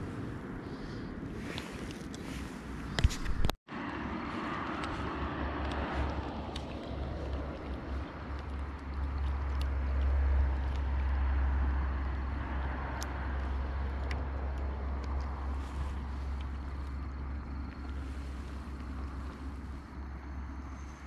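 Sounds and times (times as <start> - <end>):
low outdoor rumble: 0.0 - 21.0.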